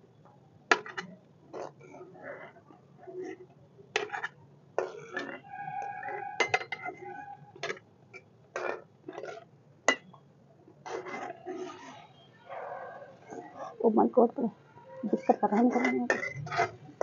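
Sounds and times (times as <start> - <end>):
metal spoon clinking on steel: 15.2 - 16.7.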